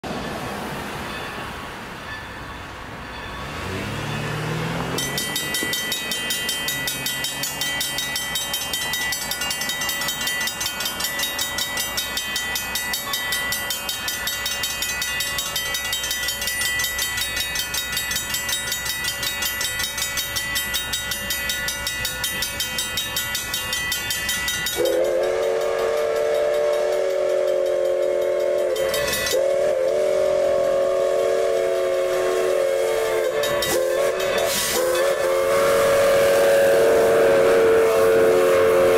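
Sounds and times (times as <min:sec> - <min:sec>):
railroad crossing bell ringing: 0:00.0 - 0:38.9
train horn blast: 0:24.7 - 0:38.9.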